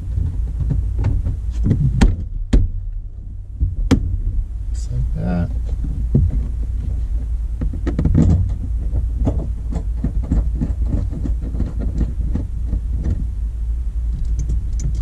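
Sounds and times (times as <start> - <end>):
interior parts clicking and rattling: 0.0 - 15.0
steady low hum: 0.0 - 15.0.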